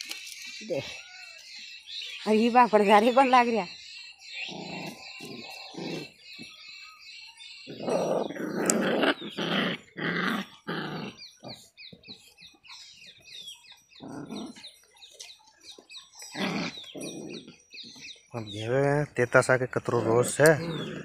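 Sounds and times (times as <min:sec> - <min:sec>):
puppies growling: 0:04.1 - 0:06.6, 0:07.6 - 0:11.9, 0:13.7 - 0:15.3, 0:16.1 - 0:18.1, 0:19.8 - 0:21.0.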